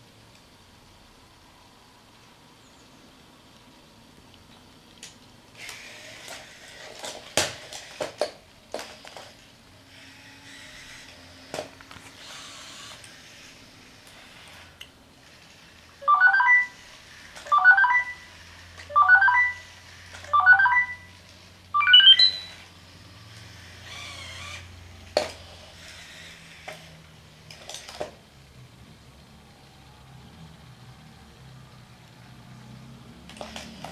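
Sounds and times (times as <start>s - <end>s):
short rising electronic chimes: 18.9s - 19.7s, 20.3s - 21.1s, 21.8s - 22.6s
warbling electronic tones: 20.3s - 21.1s, 21.8s - 22.6s.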